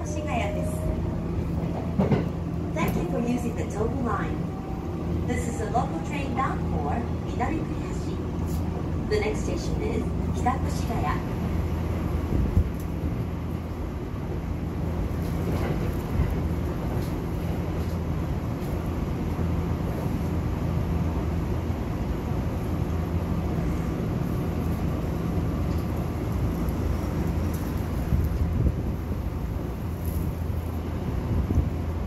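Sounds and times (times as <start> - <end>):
train rumble from inside: 0.0 - 32.0.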